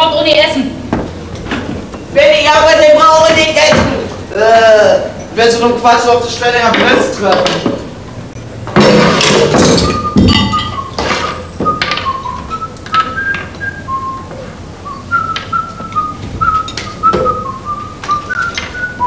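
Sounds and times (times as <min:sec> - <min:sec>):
knocks and clinks of tools: 0:08.7 - 0:12.2, 0:18.3 - 0:19.0
man whistling a tune: 0:09.7 - 0:19.0.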